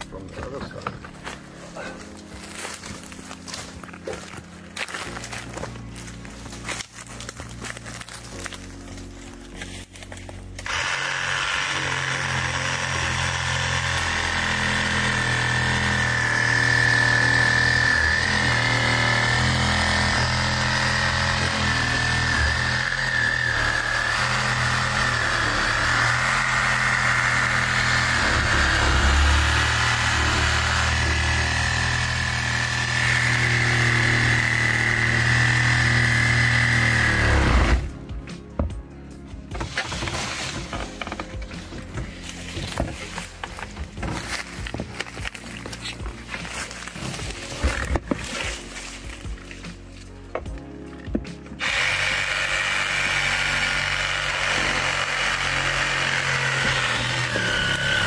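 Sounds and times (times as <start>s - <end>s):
chainsaw running at high revs: 10.6s - 37.9s, 51.6s - 58.0s.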